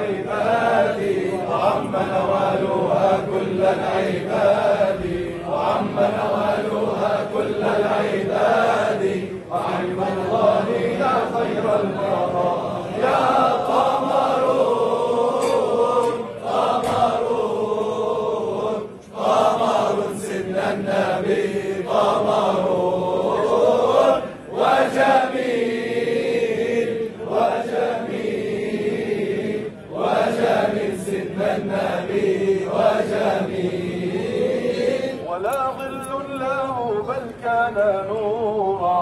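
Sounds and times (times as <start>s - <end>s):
crowd of men chanting in unison: 0.0s - 35.5s.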